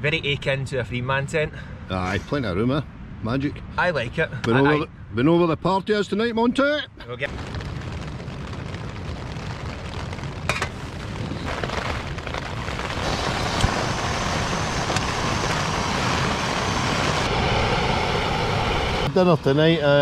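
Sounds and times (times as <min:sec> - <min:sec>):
rain and wind on tent: 0:06.5 - 0:20.0
gas stove burning hiss: 0:10.4 - 0:19.8.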